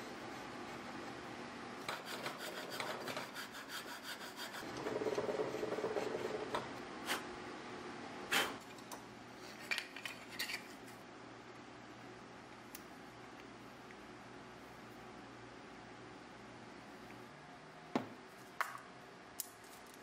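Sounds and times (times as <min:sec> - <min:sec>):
round file rasping in wood: 0:01.9 - 0:06.2.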